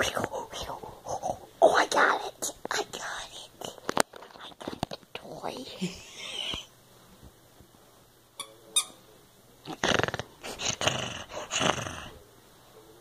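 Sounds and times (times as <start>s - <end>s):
toy squeaks: 8.4s - 9.0s
dog growling in play: 9.6s - 12.2s.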